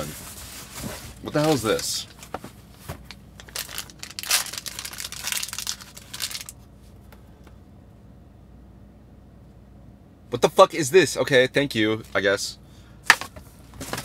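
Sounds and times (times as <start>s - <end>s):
foil packet crinkling and tearing: 3.4s - 6.6s.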